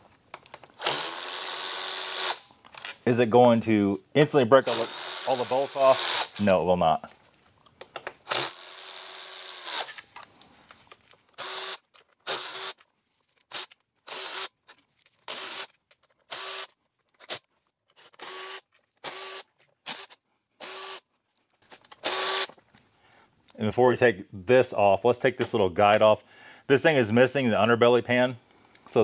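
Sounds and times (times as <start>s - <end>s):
cordless impact tool spinning bolts: 0.6s - 3.0s, 4.6s - 6.5s, 8.2s - 10.2s, 11.3s - 12.8s, 13.5s - 21.0s, 21.9s - 22.6s.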